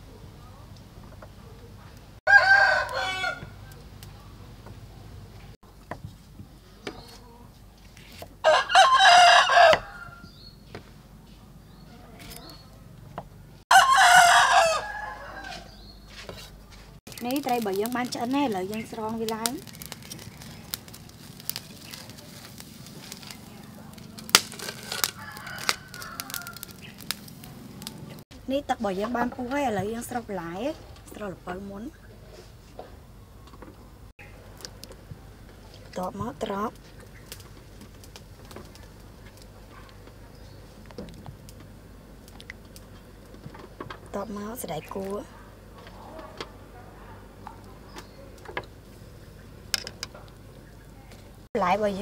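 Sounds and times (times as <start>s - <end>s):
rooster crowing: 2.3s - 3.8s, 8.4s - 10.3s, 13.7s - 15.8s, 24.6s - 27.1s.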